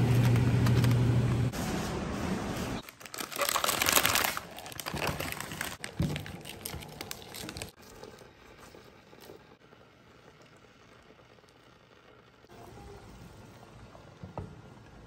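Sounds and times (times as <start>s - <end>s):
plastic packaging crinkling: 2.8s - 8.0s.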